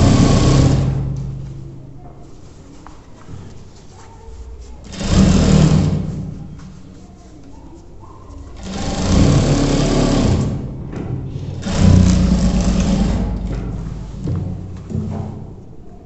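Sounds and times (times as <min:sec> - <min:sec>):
industrial sewing machine stitching: 0:00.0 - 0:01.4, 0:04.8 - 0:06.4, 0:08.5 - 0:14.4.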